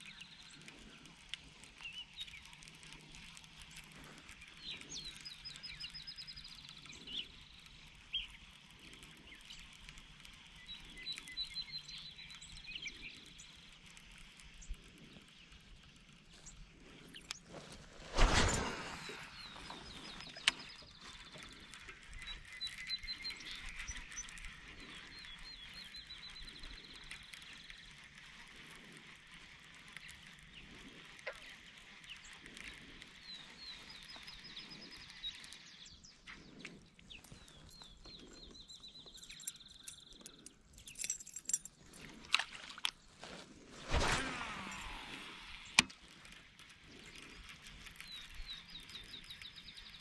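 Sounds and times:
faint outdoor ambience: 0.0 - 50.0.

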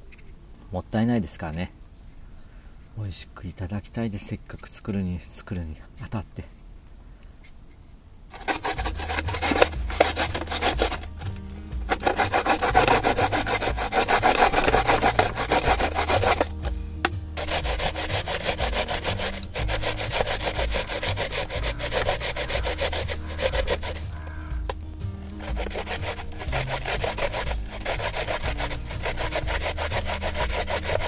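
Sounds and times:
radish rasping on a grater: 8.3 - 16.7, 17.3 - 24.6, 25.3 - 31.0.

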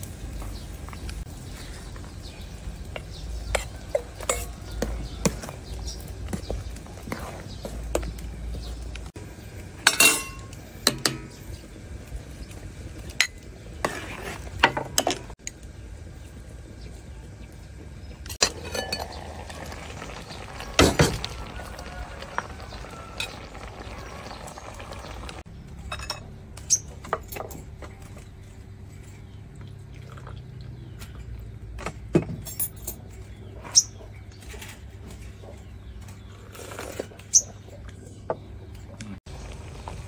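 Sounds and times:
porcelain teapot and cup clinking: 9.8 - 11.2, 18.4 - 19.9
metal ladle clinking on pot: 9.9 - 11.2.

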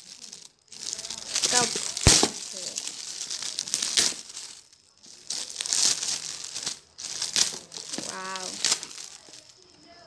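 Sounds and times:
gift wrapping crinkling and tearing: 0.0 - 10.0.

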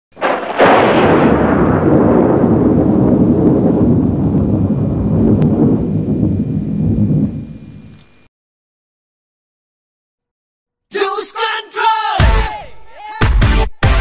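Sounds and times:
explosion boom and rumble: 0.2 - 7.7.

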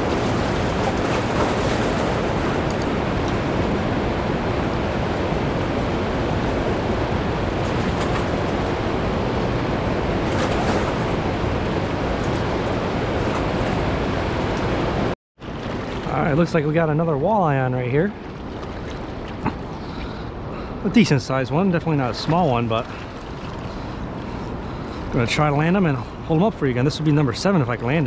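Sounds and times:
fast-flowing river water: 0.0 - 16.0
wind on microphone: 0.0 - 16.3.

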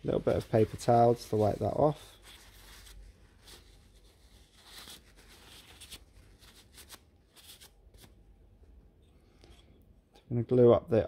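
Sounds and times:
paper towel rustling: 0.0 - 8.1.

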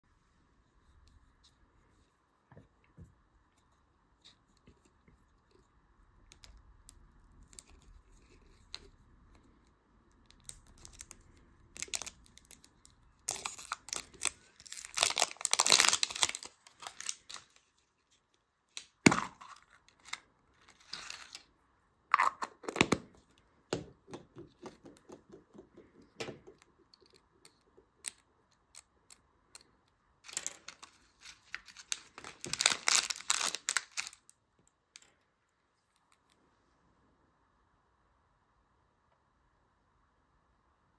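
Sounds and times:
plastic packet crinkling: 11.8 - 17.6, 30.2 - 34.3
plastic wrap tearing and crinkling: 13.2 - 17.6, 30.3 - 34.3.

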